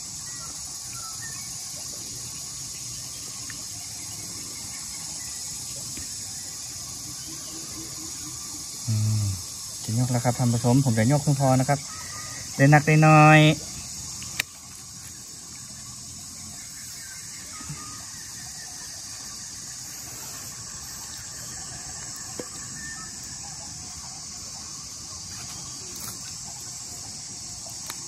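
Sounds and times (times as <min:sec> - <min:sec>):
crickets and insects chirping: 0:00.0 - 0:28.0.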